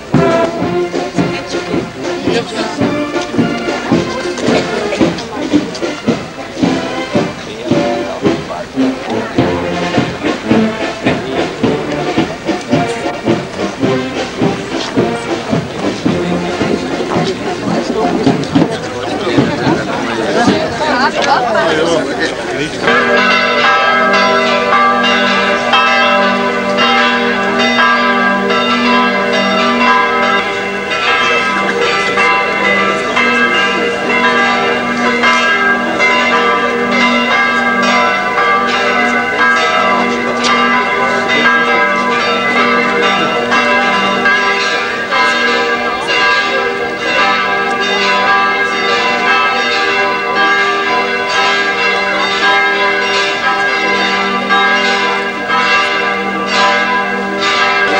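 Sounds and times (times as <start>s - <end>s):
church bells pealing: 0.0s - 57.9s.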